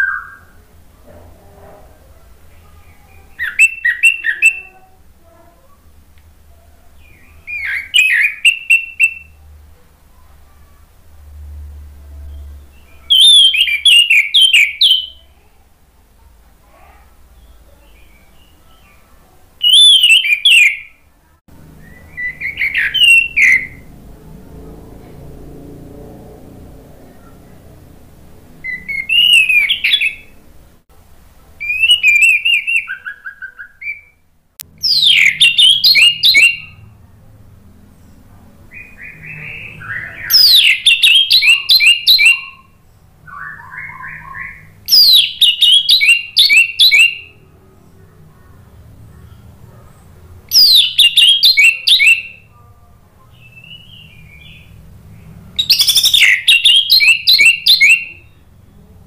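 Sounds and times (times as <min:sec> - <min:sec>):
thrush singing: 0:21.5 - 0:30.8, 0:34.6 - 0:59.0.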